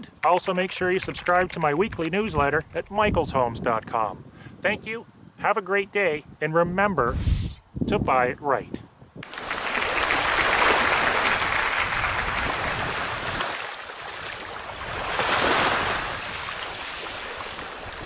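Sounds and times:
ocean waves rushing: 9.2s - 18.0s.

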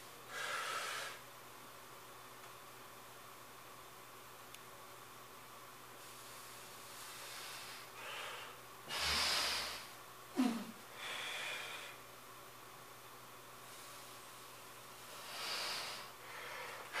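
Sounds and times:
man breathing heavily: 0.2s - 1.2s, 6.1s - 12.1s, 15.0s - 17.0s.

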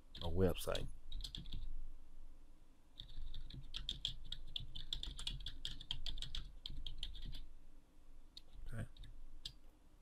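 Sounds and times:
typing on computer keyboard: 1.1s - 1.7s, 3.0s - 7.5s.

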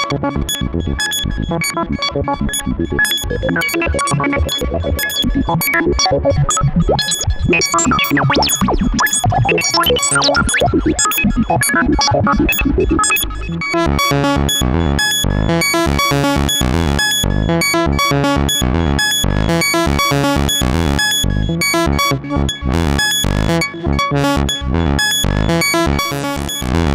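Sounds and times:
synthesizer sequence with echo: 11.9s - 26.9s.

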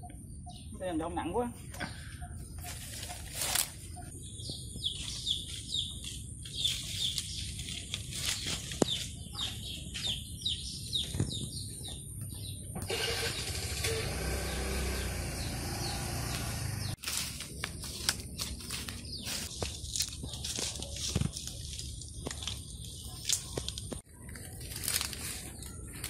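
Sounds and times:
small bird chirping: 0.0s - 12.8s.

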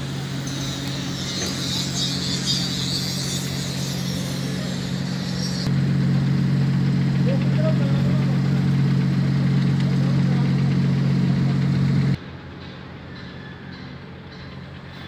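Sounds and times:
high hiss: 0.0s - 5.7s
engine idling hum: 0.0s - 13.1s.

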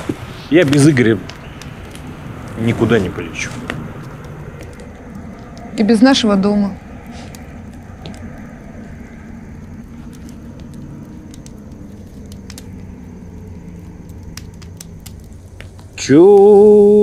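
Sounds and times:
campfire crackling: 0.0s - 17.0s
low steady rumble: 0.0s - 17.0s
sharp fire pops: 0.0s - 17.0s.

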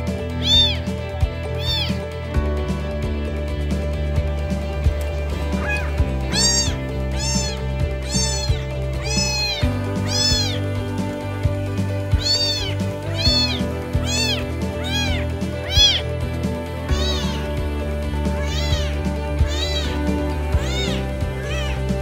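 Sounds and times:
background music with low chords: 0.0s - 22.0s
kitten meowing: 0.3s - 2.1s, 5.4s - 10.9s, 12.0s - 16.2s, 16.8s - 17.6s, 18.3s - 22.0s.

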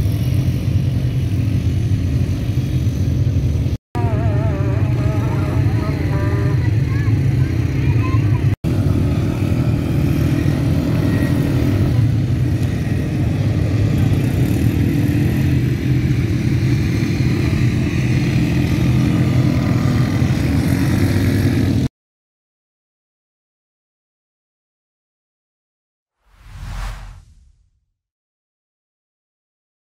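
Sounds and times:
quad bike engines droning: 0.0s - 21.9s.

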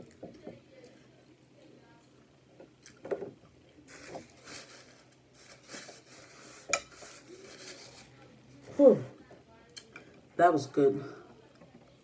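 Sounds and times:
paper napkin rustling: 3.9s - 8.9s.

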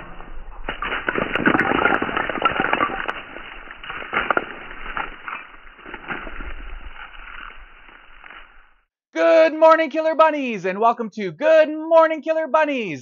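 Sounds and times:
brick blast: 0.0s - 7.0s
debris crackling and clattering: 0.0s - 8.8s.

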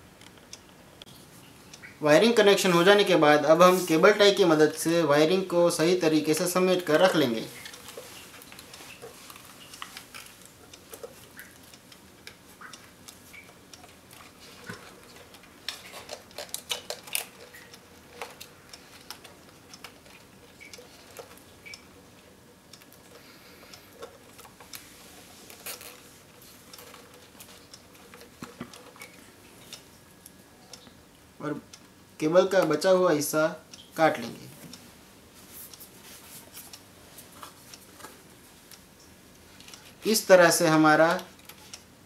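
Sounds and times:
wires clicking and rustling: 6.2s - 31.0s, 35.4s - 41.9s.

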